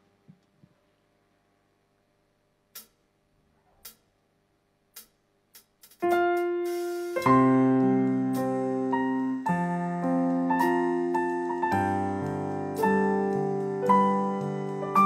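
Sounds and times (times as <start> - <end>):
electric piano chords: 5.9 - 15.0.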